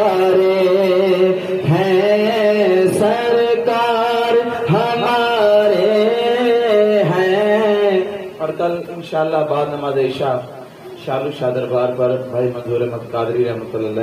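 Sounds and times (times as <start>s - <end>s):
man singing into microphone: 0.0s - 9.6s.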